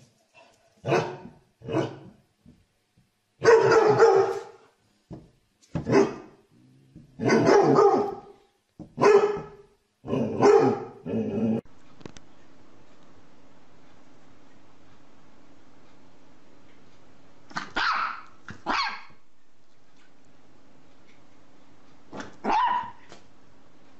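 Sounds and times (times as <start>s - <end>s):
dog barking: 0.8s - 2.1s, 3.4s - 4.6s, 5.8s - 6.4s, 7.2s - 8.4s, 9.0s - 11.0s, 17.6s - 19.2s, 22.1s - 23.0s.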